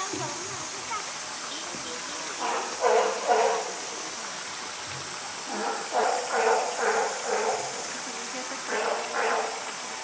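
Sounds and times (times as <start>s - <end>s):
onlookers chattering: 0.0s - 4.8s, 5.5s - 10.0s
rushing hiss: 0.0s - 10.0s.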